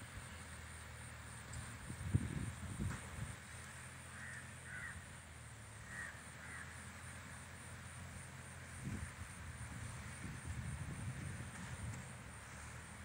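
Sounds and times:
distant tractor drone: 0:00.0 - 0:13.0
bird calling: 0:04.1 - 0:05.0, 0:05.8 - 0:06.9.

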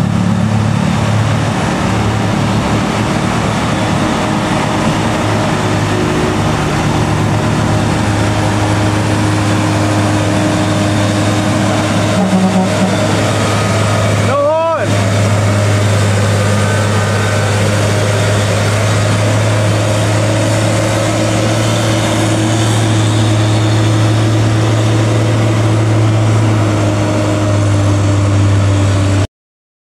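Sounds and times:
truck diesel engine climbing: 0:00.0 - 0:29.3.

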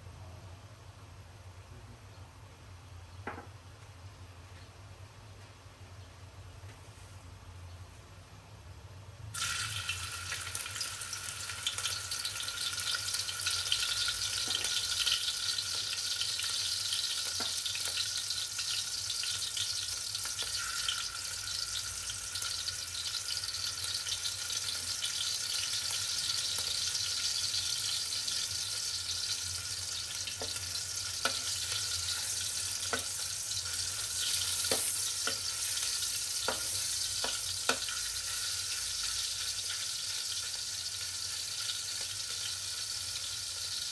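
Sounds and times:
fish sizzling in oil: 0:09.3 - 0:43.9.

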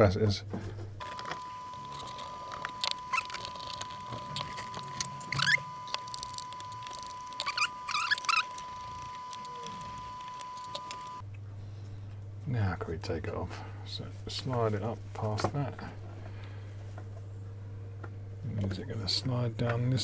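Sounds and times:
high-pitched whine: 0:01.0 - 0:11.2
screwdriver clicks and squeaks: 0:01.0 - 0:11.2.

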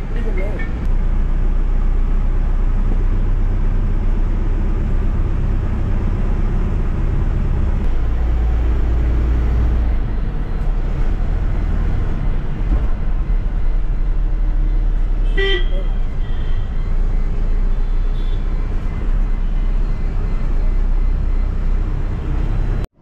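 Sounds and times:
bus diesel engine rumbling: 0:00.0 - 0:23.0.

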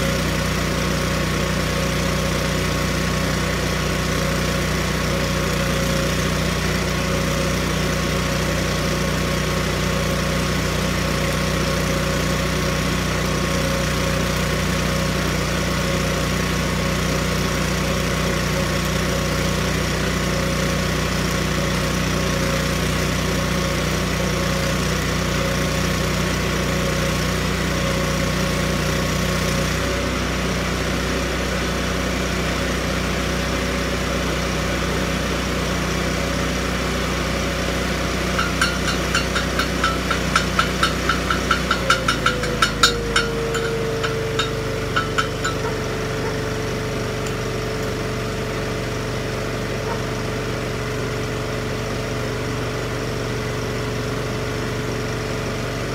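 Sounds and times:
welder engine running: 0:00.0 - 0:55.9
sharp metallic taps: 0:38.4 - 0:46.5.

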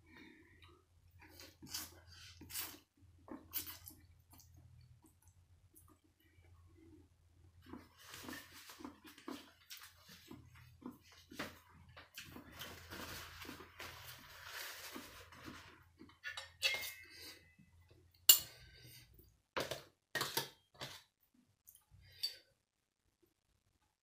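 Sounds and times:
cutlery scraping a metal tray: 0:16.2 - 0:17.4.

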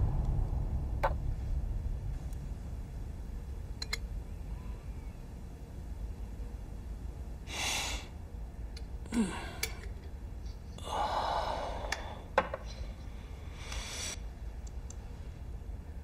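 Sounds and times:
man sighing: 0:09.1 - 0:09.9
man breathing heavily: 0:10.8 - 0:14.2.

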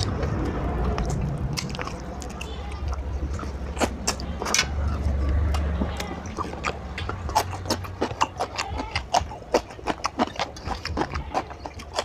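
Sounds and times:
person chewing noisily: 0:00.0 - 0:12.0.

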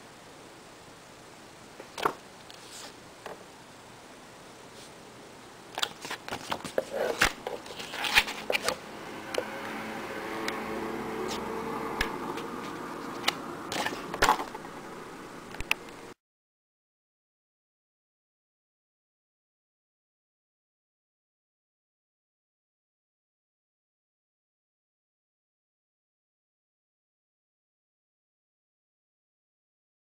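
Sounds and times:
booklet pages rustling: 0:02.4 - 0:03.0, 0:05.8 - 0:08.8, 0:12.3 - 0:14.6.

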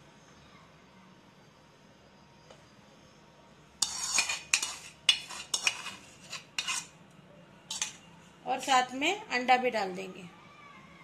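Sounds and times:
metal spoon scraping steel pan: 0:03.8 - 0:07.0, 0:07.7 - 0:08.8.

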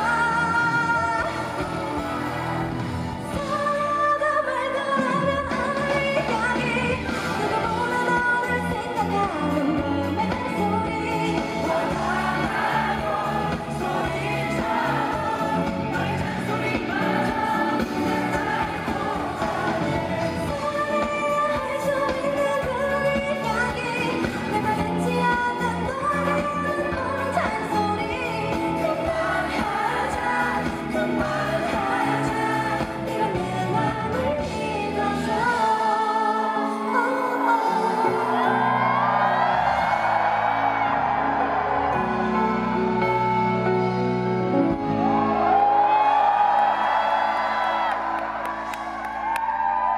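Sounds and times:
person singing: 0:00.0 - 0:40.0
band playing pop music: 0:00.0 - 0:49.9.

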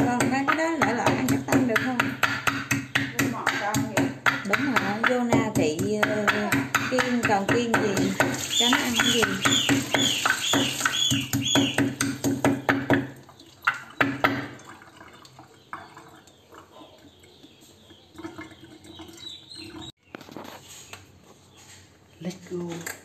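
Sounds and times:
pestle pounding in ceramic bowl: 0:00.0 - 0:13.1.

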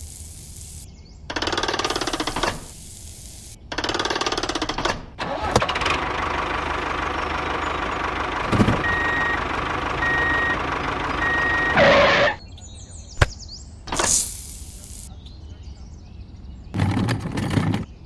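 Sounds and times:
short hiss: 0:00.0 - 0:00.9, 0:01.9 - 0:03.6, 0:13.9 - 0:15.1
tractor engine running: 0:00.0 - 0:12.4
reversing beeps: 0:08.8 - 0:10.6, 0:11.2 - 0:12.4.

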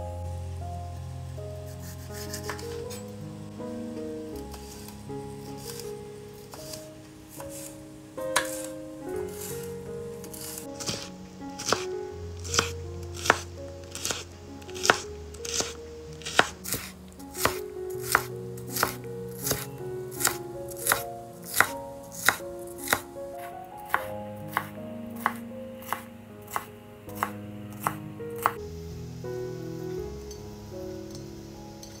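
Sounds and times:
background music with held notes: 0:00.0 - 0:32.0
knife chopping on cutting board: 0:08.4 - 0:08.7, 0:10.4 - 0:11.8, 0:12.5 - 0:14.2, 0:14.8 - 0:23.0, 0:23.9 - 0:28.6.

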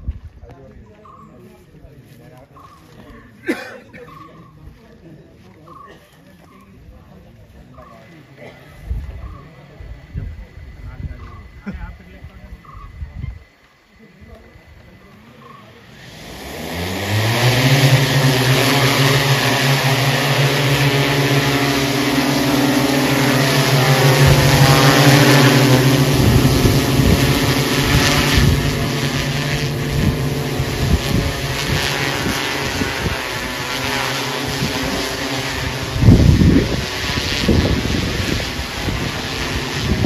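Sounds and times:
drone rotors humming: 0:03.9 - 0:40.0
rotor wash buffeting microphone: 0:14.8 - 0:40.0.

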